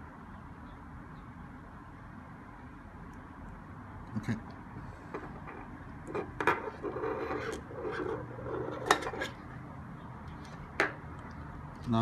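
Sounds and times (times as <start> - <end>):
rough rubbing: 5.2 - 9.4.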